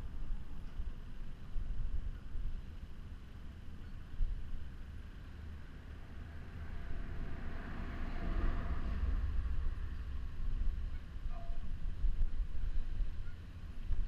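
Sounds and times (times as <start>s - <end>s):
wind on microphone: 0.0s - 14.0s
passing vehicle rushing: 5.3s - 12.0s.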